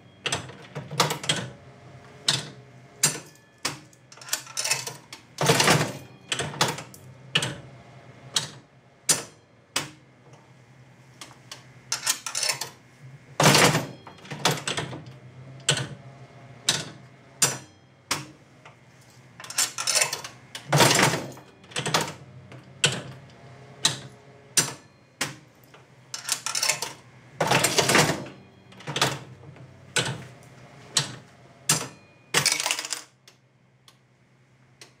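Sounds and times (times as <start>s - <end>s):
mechanism clicks and clunks: 0.2s - 1.6s, 2.2s - 7.7s, 8.3s - 10.4s, 11.2s - 12.8s, 13.4s - 16.0s, 16.6s - 18.8s, 19.4s - 34.0s
slot machine reels clattering: 2.2s - 7.6s, 11.9s - 12.8s, 13.4s - 16.0s, 19.4s - 24.9s, 26.1s - 30.2s, 31.0s - 33.2s.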